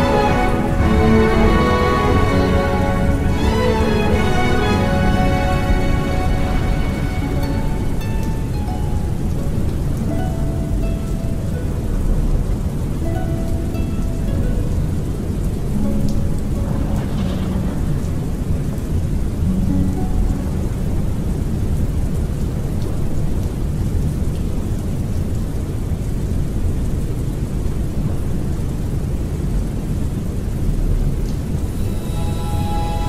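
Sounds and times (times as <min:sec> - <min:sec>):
orchestral music: 0:00.0 - 0:22.6, 0:31.6 - 0:33.0
steady rain: 0:00.0 - 0:33.0
low rolling thunder: 0:16.2 - 0:19.6.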